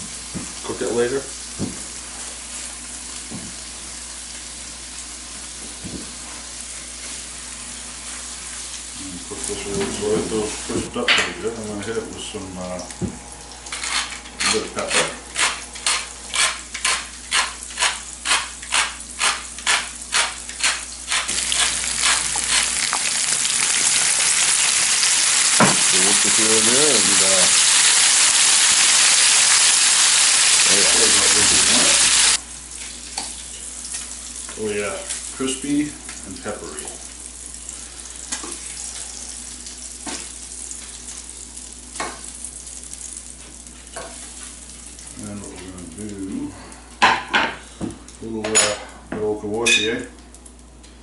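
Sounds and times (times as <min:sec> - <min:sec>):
meat sizzling in a skillet: 0:13.5 - 0:46.4
pepper mill grinding: 0:13.8 - 0:32.4.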